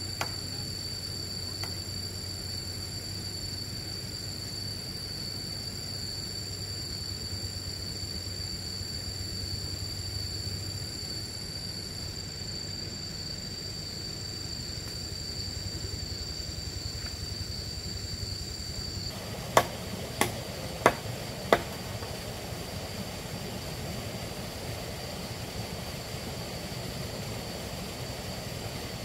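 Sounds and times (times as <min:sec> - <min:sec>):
high-pitched insect drone: 0:00.0 - 0:29.0
low background hum: 0:00.0 - 0:29.0
hand tool strikes: 0:19.5 - 0:22.1.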